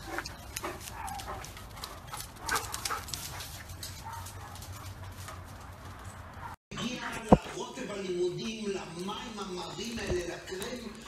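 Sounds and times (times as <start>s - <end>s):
paws scuffing and clicking: 0.0s - 7.6s.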